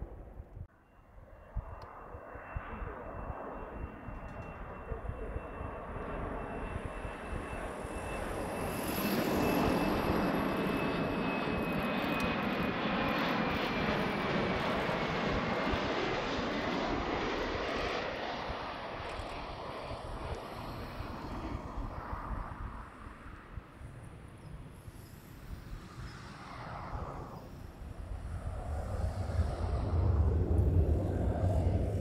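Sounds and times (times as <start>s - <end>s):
jet engines on landing approach: 0.0s - 32.0s
high jet whine: 24.4s - 32.0s.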